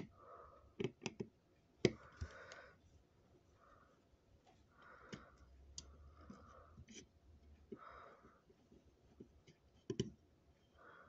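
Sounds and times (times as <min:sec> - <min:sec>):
faint breathing: 0:00.0 - 0:00.8, 0:01.9 - 0:08.8, 0:10.6 - 0:11.0.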